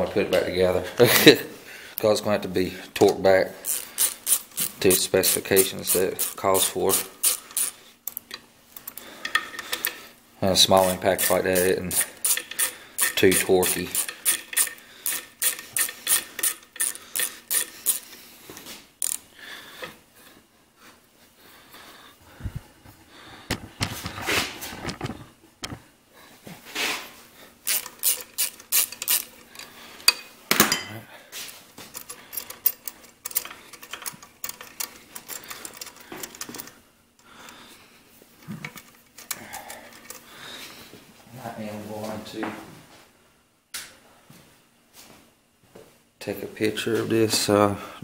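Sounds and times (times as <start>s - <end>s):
ratchet wrench clicking: 3.6s - 10.0s, 10.8s - 18.2s, 19.0s - 19.2s, 27.6s - 30.2s, 31.9s - 36.7s
metal clinks and knocks: 11.3s - 18.2s, 31.8s - 36.8s.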